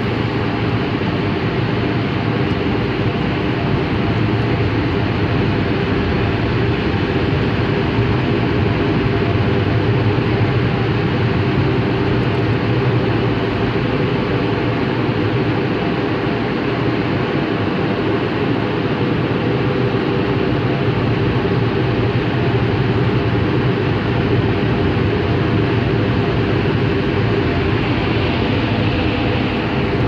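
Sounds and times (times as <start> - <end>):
low hum: 20.5 - 30.0.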